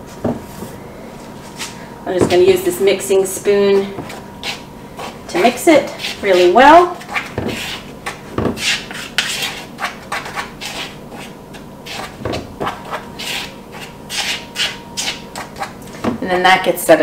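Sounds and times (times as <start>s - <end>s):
spoon scraping flour in a bowl: 4.4s - 15.8s.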